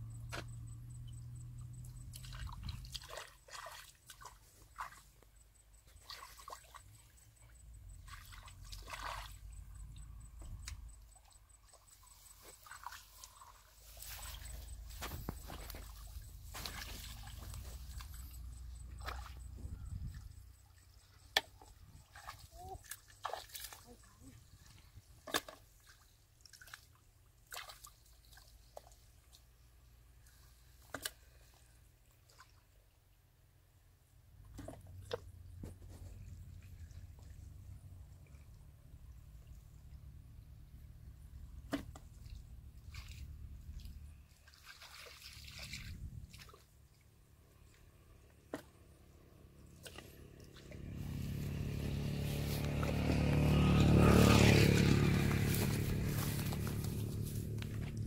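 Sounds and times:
hands splashing in muddy water: 2.1 - 5.1, 8.0 - 9.5, 11.6 - 18.3, 21.4 - 24.1, 25.2 - 29.4, 41.7 - 46.8, 49.7 - 58.0.

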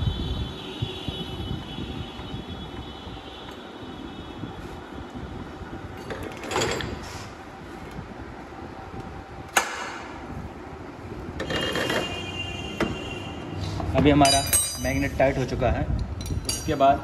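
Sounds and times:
workshop background noise: 4.4 - 17.0.

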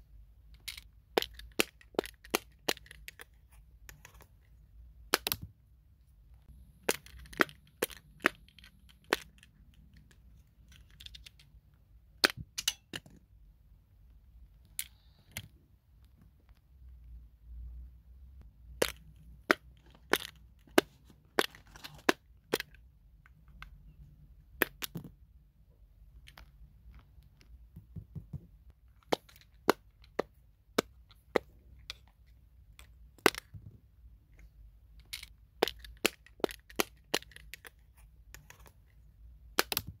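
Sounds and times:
silicone pop toy pops: 5.1 - 5.5, 39.5 - 40.0.

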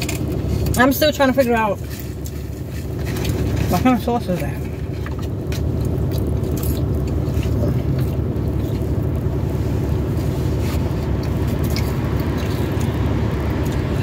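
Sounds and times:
car engine hum inside cabin: 0.0 - 14.0
person chewing: 4.9 - 14.0.

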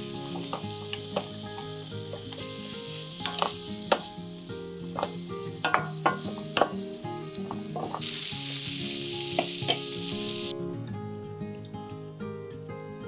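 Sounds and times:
vegetables sizzling in a frying pan: 0.0 - 10.5
wooden spatula knocking on pan: 0.4 - 2.4, 3.2 - 4.1, 5.0 - 6.8, 7.4 - 8.1.

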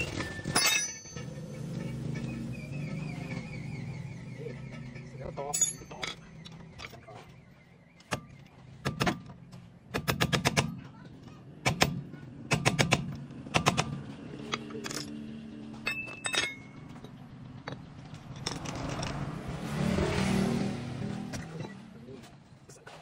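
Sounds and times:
light metallic clinks: 5.5 - 6.5, 15.8 - 19.2.

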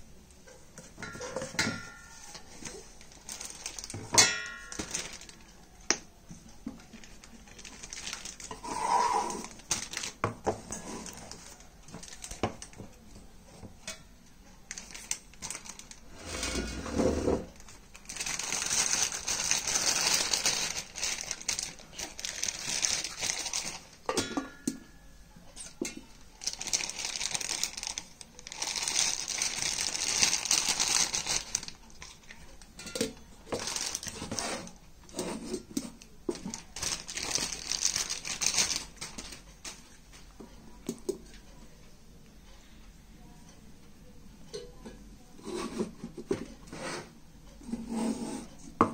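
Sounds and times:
plastic wrapping crinkling: 2.1 - 13.0, 14.6 - 16.2, 17.5 - 24.1, 26.0 - 32.6, 33.5 - 34.8, 35.8 - 40.0
steel jars clinking: 24.1 - 24.8.

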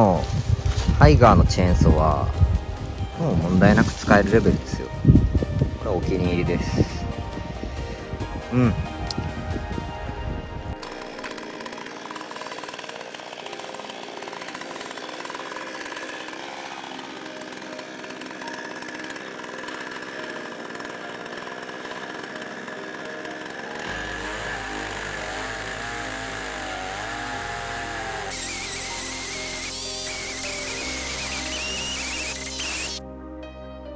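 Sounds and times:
chainsaw ripping log: 3.2 - 4.9, 10.8 - 33.0.

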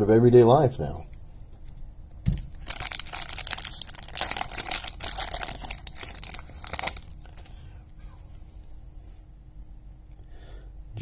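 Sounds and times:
card pack wrapper tearing: 2.5 - 7.6.

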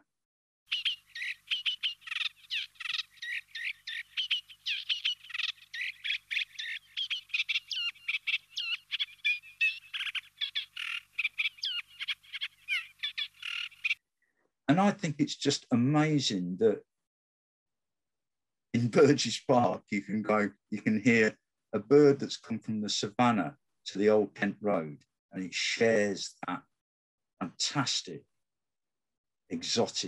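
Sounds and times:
warbler singing rapid notes: 0.7 - 14.0.

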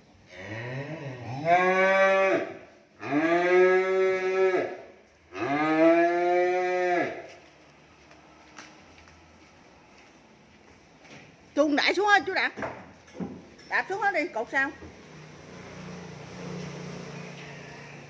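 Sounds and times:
cattle mooing: 0.3 - 7.2.

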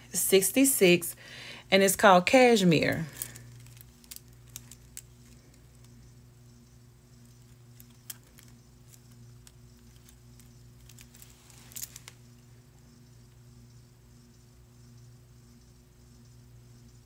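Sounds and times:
steady low hum: 0.0 - 17.0
light clicks of small items handled: 3.1 - 6.0, 7.3 - 12.2.

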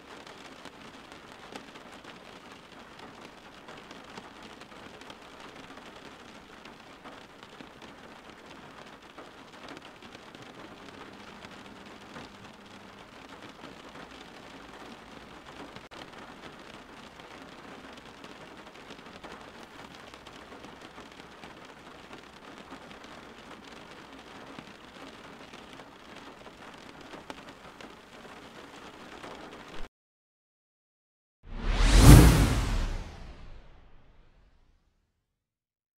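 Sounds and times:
steady rain: 0.0 - 29.9.

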